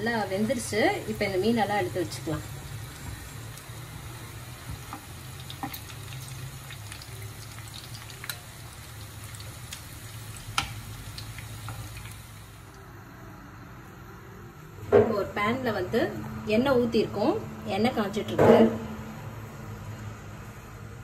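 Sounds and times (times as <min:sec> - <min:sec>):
fish sizzling in hot oil: 0:00.0 - 0:12.8.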